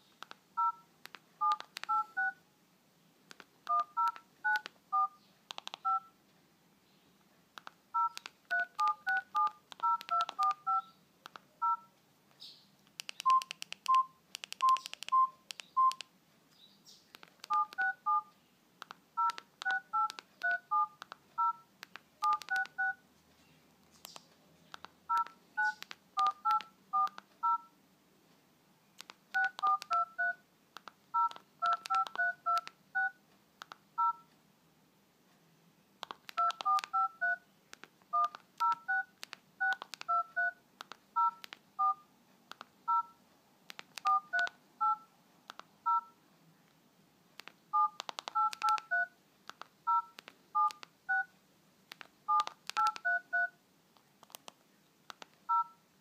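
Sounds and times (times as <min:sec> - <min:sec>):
phone keypad beeps and clicks: 0:00.2 - 0:02.4, 0:03.3 - 0:06.2, 0:07.9 - 0:12.0, 0:13.0 - 0:16.1, 0:17.1 - 0:18.3, 0:18.9 - 0:23.0, 0:24.0 - 0:27.8, 0:29.0 - 0:34.3, 0:36.0 - 0:46.2, 0:47.4 - 0:51.3, 0:51.9 - 0:53.6, 0:55.1 - 0:55.8.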